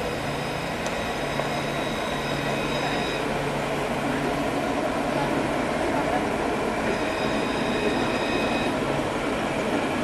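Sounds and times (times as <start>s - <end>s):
tram rumbling past: 0.0s - 10.0s
thin high whine: 6.9s - 8.8s.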